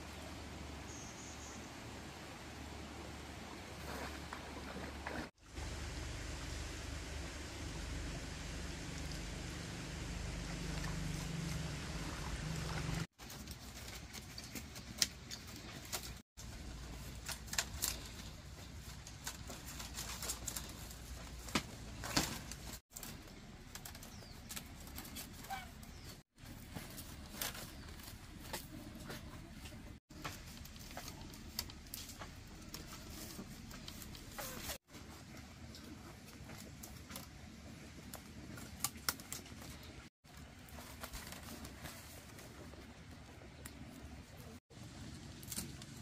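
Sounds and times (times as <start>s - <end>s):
low background hum: 0.0s - 46.0s
faint bird chirps: 0.8s - 1.8s
bamboo strips rustling and clicking: 8.7s - 46.0s
bamboo snapping: 16.9s - 18.4s, 38.6s - 39.7s, 45.3s - 46.0s.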